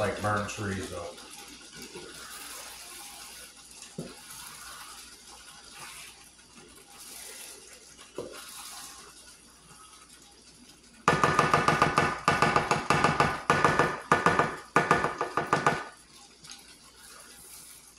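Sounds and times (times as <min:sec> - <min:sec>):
meat sizzling in a frying pan: 0:00.0 - 0:17.9
spatula knocking against pan: 0:11.1 - 0:15.9.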